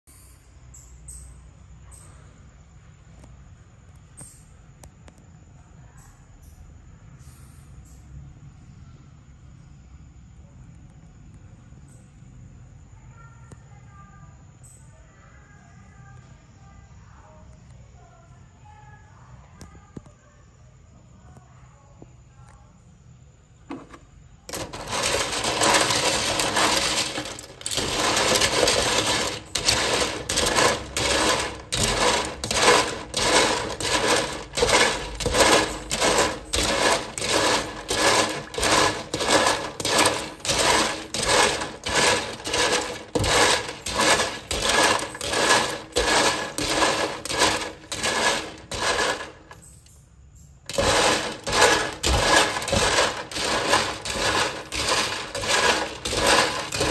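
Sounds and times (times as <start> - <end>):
brush scrubbing in water: 24.5 - 49.5, 50.7 - 56.9
shells clattering in steel bowl: 24.5 - 50.0, 50.6 - 56.9.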